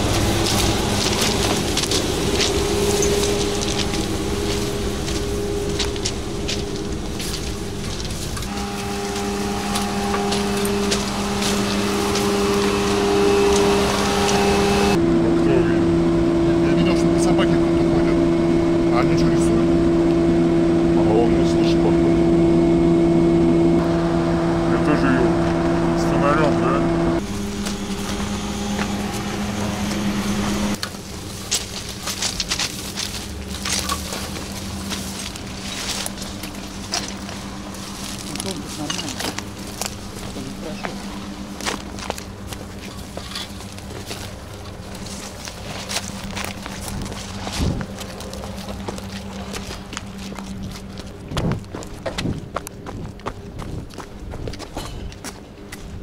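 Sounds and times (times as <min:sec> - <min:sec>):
rustling through bushes: 0:00.0 - 0:15.0, 0:27.2 - 0:56.0
electric train hum: 0:00.0 - 0:56.0
twigs snapping: 0:00.1 - 0:08.5, 0:30.8 - 0:40.4, 0:41.5 - 0:52.0.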